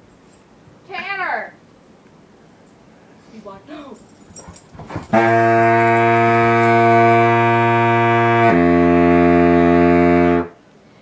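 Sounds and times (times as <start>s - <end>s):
baritone saxophone low notes: 5.1s - 10.6s.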